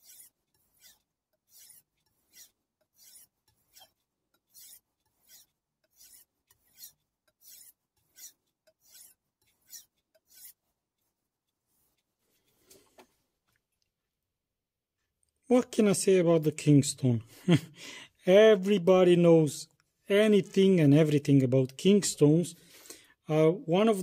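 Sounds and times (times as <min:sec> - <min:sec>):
knife rasping on whetstone: 0:00.0 - 0:12.2.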